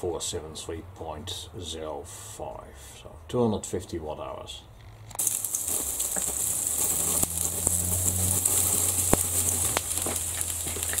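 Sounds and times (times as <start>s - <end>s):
sharp pops: 5.1s - 11.0s
transformer humming: 5.2s - 11.0s
water sizzling on hot metal: 5.2s - 11.0s.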